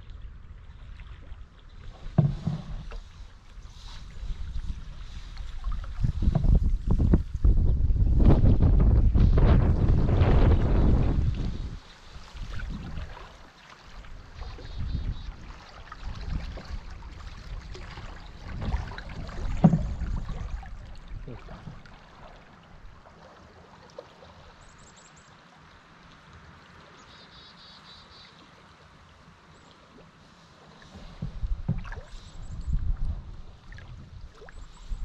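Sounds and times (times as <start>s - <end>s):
paddle strokes splashing water: 0.0s - 35.0s
paddle knocking on canoe hull: 2.0s - 3.0s, 6.0s - 7.6s, 16.0s - 22.4s, 30.9s - 32.1s.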